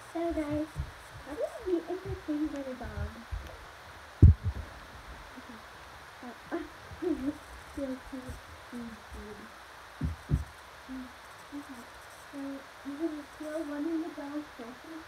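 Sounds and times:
muffled low voices or humming: 0:00.0 - 0:15.0
soft thumps: 0:04.2 - 0:04.8, 0:10.0 - 0:10.5.

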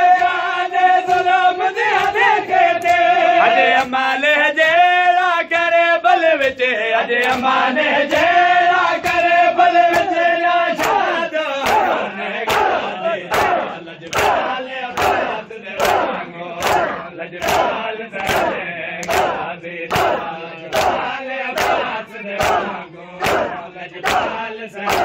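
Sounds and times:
rhythmic chest-beating: 0:00.0 - 0:25.0
crowd voices: 0:08.2 - 0:25.0.

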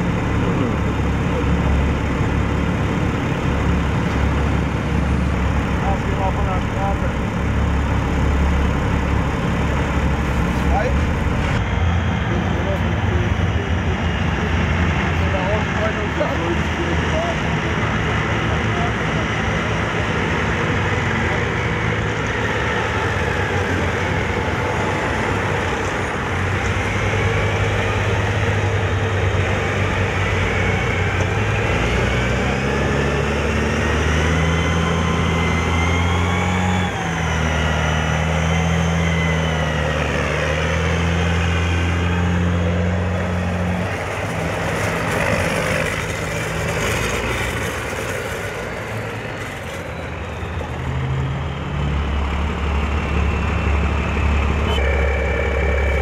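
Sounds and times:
low engine drone: 0:00.0 - 0:56.0
high whine: 0:52.9 - 0:56.0.

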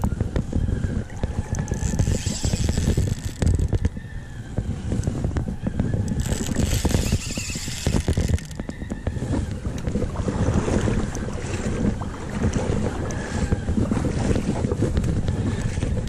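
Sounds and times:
wind buffeting microphone: 0:00.0 - 0:16.0
fishing reel clicking: 0:01.1 - 0:04.0, 0:06.1 - 0:09.6.

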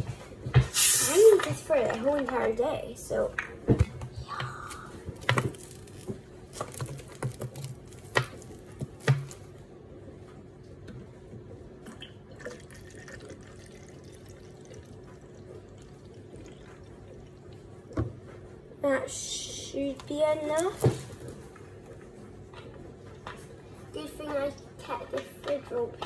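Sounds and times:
plastic bottles knocking and clicking: 0:05.2 - 0:09.4
fizzy cola pouring: 0:11.8 - 0:17.7.

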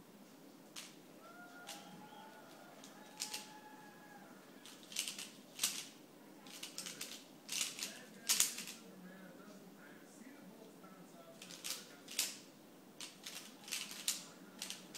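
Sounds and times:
puzzle cube clacking turns: 0:00.7 - 0:01.0, 0:02.5 - 0:03.5, 0:04.6 - 0:08.8, 0:11.4 - 0:14.9.

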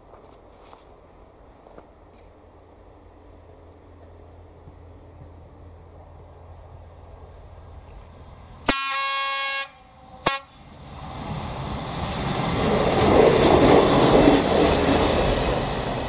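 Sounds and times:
railbus running noise: 0:00.0 - 0:16.0
train horn: 0:08.7 - 0:10.6.

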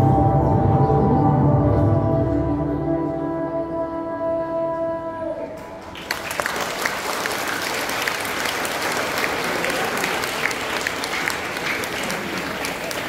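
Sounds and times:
audience applause: 0:05.8 - 0:13.0.

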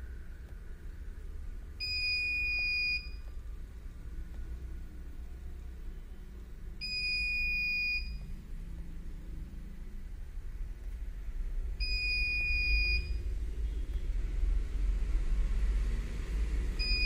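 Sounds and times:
high-pitched alarm buzzer beeps: 0:06.8 - 0:08.2.

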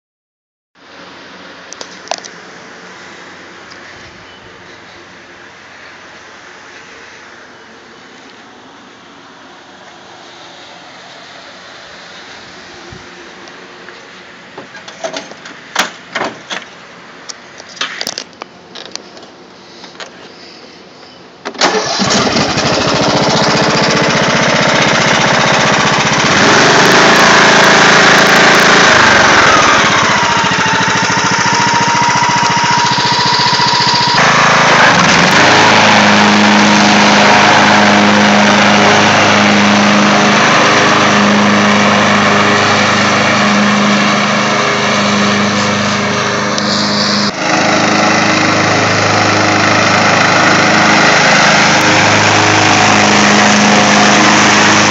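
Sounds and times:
lawn tractor engine mowing: 0:21.4 - 0:54.9.

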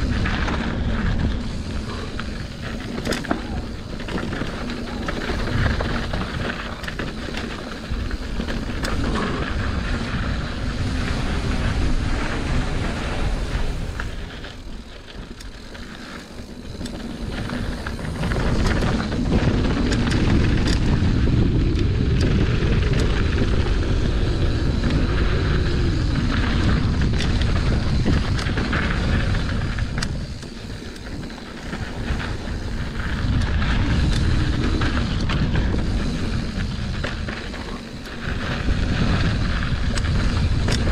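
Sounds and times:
bike clicking and rattling: 0:00.0 - 0:40.9
bike tyre noise on dirt: 0:00.0 - 0:40.9
wind rushing on microphone: 0:00.0 - 0:40.9.

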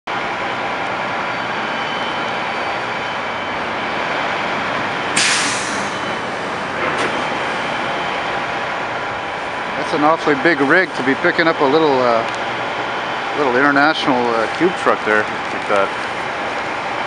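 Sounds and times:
heavy trucks passing: 0:00.1 - 0:17.0
street traffic: 0:00.1 - 0:17.0
air brakes hissing: 0:05.1 - 0:06.2.

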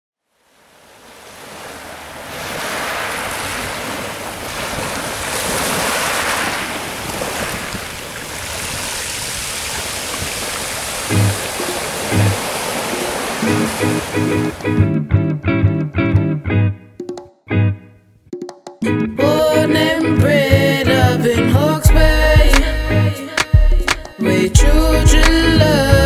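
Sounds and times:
ocean surf washing: 0:00.3 - 0:14.9
deep bass music beat: 0:20.5 - 0:26.0.

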